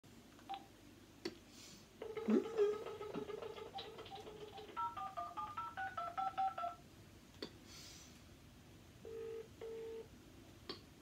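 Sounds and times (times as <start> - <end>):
phone keypad tone beeps: 3.7 - 6.8.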